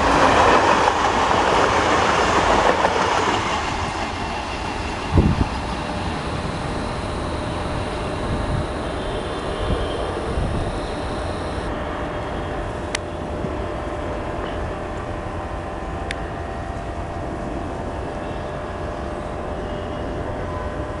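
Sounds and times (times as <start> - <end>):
train coaches rumbling on track: 0.0 - 10.5
sharp clicks: 10.2 - 11.7.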